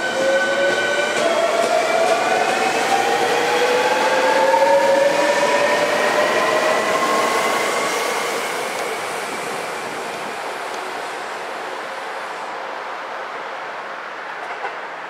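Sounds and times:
train wheels rolling: 0:00.0 - 0:11.3.

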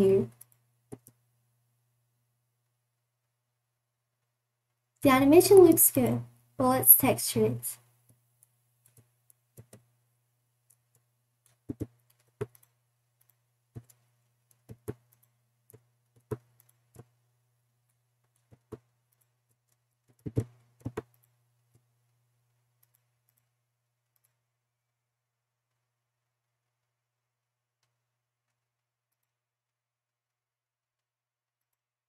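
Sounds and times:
mouse and keyboard clicks: 0:00.2 - 0:01.2, 0:10.7 - 0:17.1, 0:18.3 - 0:21.8, 0:22.8 - 0:23.5, 0:24.1 - 0:24.4.

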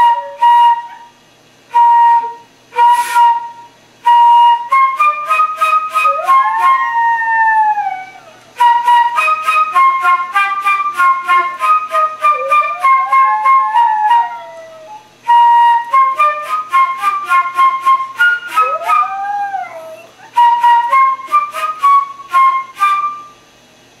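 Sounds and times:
flute playing quick notes: 0:00.0 - 0:01.1, 0:01.7 - 0:07.2, 0:08.6 - 0:23.4
dog howling: 0:04.6 - 0:10.3, 0:11.3 - 0:15.1, 0:15.8 - 0:23.2.

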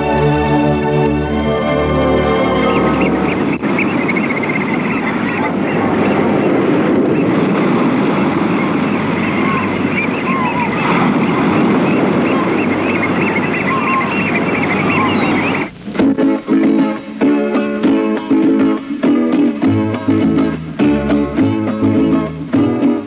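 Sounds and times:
loud background rumble: 0:00.0 - 0:16.1
small birds chirping: 0:02.3 - 0:17.2.

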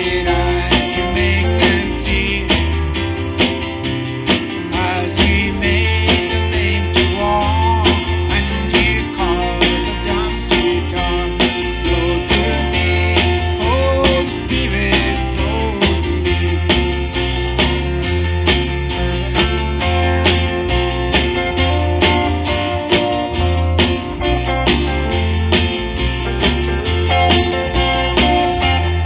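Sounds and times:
man singing: 0:00.0 - 0:03.1, 0:04.7 - 0:16.9
bass line: 0:00.0 - 0:29.0
steady drum beat: 0:00.0 - 0:29.0
strummed acoustic guitar: 0:00.0 - 0:29.0.

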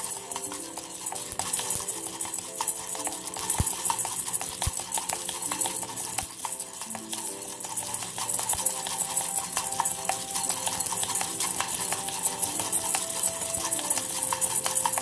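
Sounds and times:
background music: 0:00.0 - 0:15.0
coffee beans rattling in a pan: 0:00.0 - 0:15.0
wooden spatula stirring: 0:00.0 - 0:15.0.

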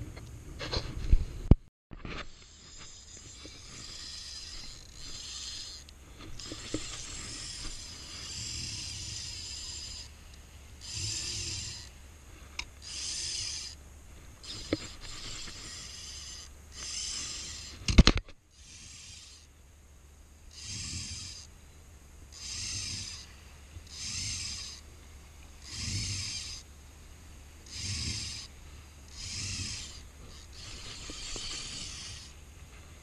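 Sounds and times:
spinning reel whirring: 0:02.2 - 0:10.2, 0:10.8 - 0:12.0, 0:12.8 - 0:13.8, 0:14.4 - 0:19.5, 0:20.5 - 0:21.5, 0:22.3 - 0:24.8, 0:25.6 - 0:26.6, 0:27.6 - 0:32.4.

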